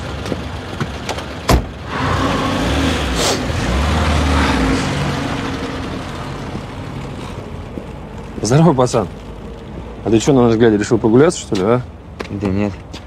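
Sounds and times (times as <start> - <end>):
car engine rumbling: 0.0 - 12.7
car door slamming: 1.5 - 1.7.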